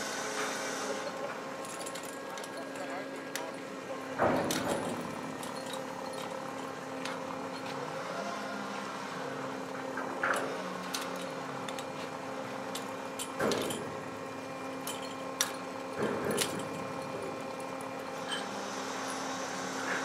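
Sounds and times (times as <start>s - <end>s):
engine running steadily: 0.0s - 20.0s
metal clanks and knocks: 4.2s - 6.4s, 12.7s - 14.1s, 14.8s - 18.5s.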